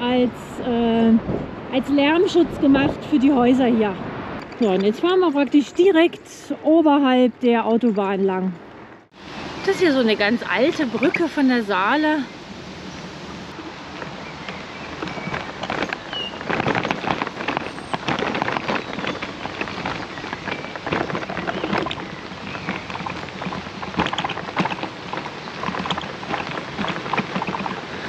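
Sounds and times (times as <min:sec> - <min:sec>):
bicycle tyres on rough path: 0:09.2 - 0:28.0.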